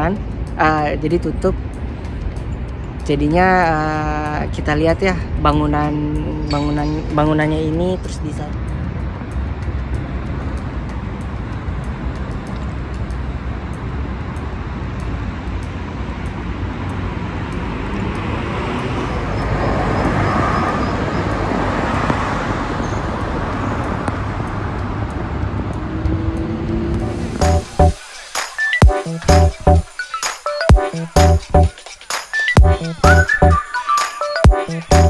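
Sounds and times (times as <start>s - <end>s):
road traffic noise: 0.0s - 35.0s
car passing by: 8.5s - 28.8s.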